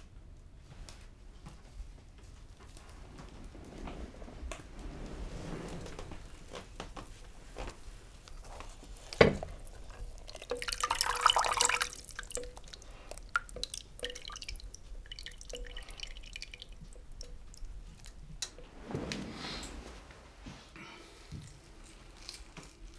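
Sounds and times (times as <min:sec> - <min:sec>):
water stirred and splashing in pot: 0:08.2 - 0:18.7
water drips ringing in pot: 0:10.0 - 0:18.6.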